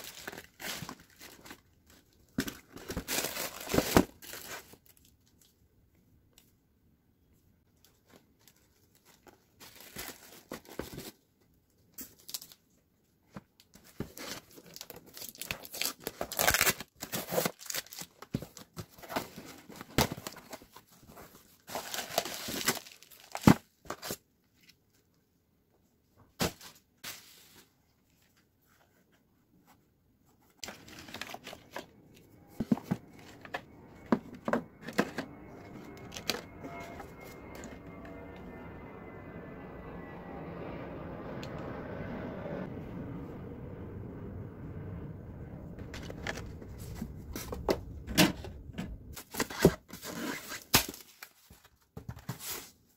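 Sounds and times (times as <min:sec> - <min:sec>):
cardboard and plastic rustling: 0:00.0 - 0:05.5, 0:07.8 - 0:12.6, 0:13.2 - 0:24.8, 0:26.3 - 0:37.8, 0:45.8 - 0:52.9.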